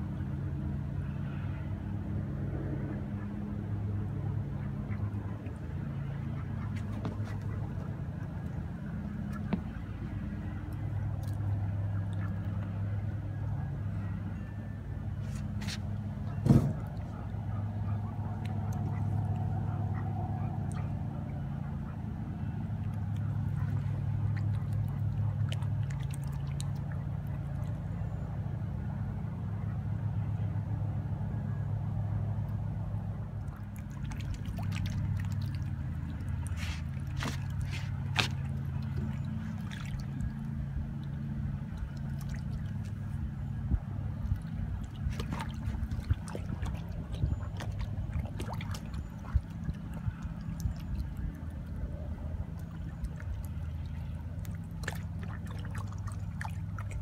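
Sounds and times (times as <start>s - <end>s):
low motor hum: 0.0s - 57.0s
light splashes on water: 33.4s - 43.2s, 44.2s - 51.8s, 52.5s - 57.0s.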